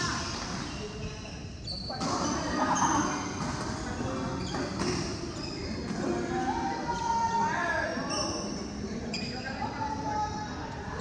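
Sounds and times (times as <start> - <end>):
shoes squeaking on court floor: 0.0 - 7.1, 8.0 - 9.7.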